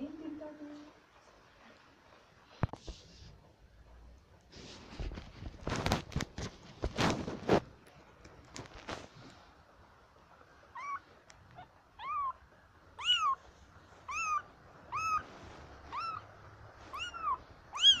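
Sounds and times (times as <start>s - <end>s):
kitten mewing: 10.7s - 12.4s, 13.0s - 15.3s, 15.9s - 16.3s, 16.9s - 18.0s.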